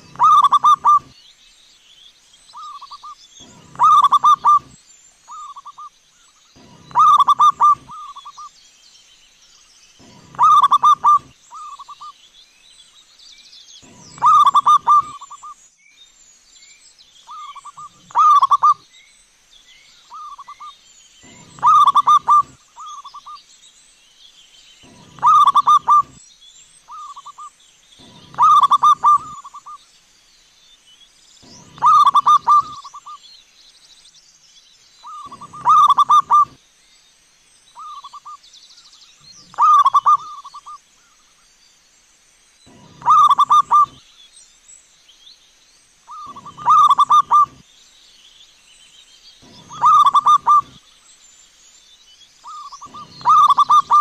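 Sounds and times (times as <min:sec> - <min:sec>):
dove cooing: 0:00.0 - 0:01.1, 0:02.6 - 0:05.8, 0:06.6 - 0:08.4, 0:10.0 - 0:12.0, 0:13.8 - 0:15.5, 0:17.3 - 0:18.8, 0:20.2 - 0:23.2, 0:24.8 - 0:26.2, 0:28.0 - 0:29.8, 0:31.4 - 0:33.2, 0:35.1 - 0:36.6, 0:39.5 - 0:40.7, 0:42.7 - 0:44.0, 0:46.1 - 0:47.6, 0:49.4 - 0:50.8, 0:52.5 - 0:54.0
small birds chirping: 0:00.0 - 0:54.0.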